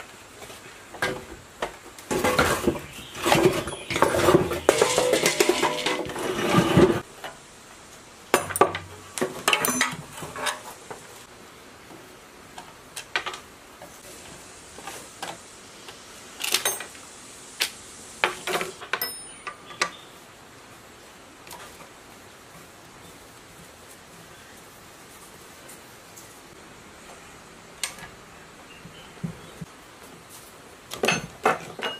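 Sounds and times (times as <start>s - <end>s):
metal tools clinking: 3.2s - 6.8s, 9.5s - 10.6s, 16.4s - 17.0s, 18.9s - 19.7s.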